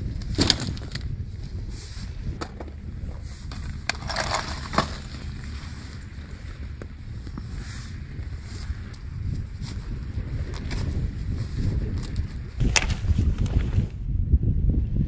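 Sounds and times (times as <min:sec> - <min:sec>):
wind rumble on microphone: 0:00.0 - 0:15.0
backpack knocking on pebbles: 0:00.2 - 0:01.1, 0:03.5 - 0:05.7.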